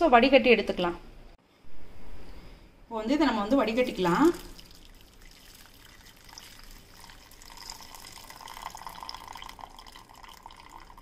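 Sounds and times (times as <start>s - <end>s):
liquid trickling into a steel pot: 3.6s - 11.0s.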